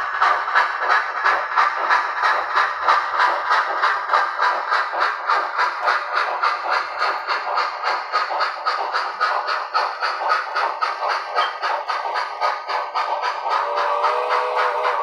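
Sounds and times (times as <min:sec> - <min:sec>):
model train wheels rolling on track: 0:00.0 - 0:15.0
steam exhaust chuff from small speaker: 0:03.0 - 0:15.0.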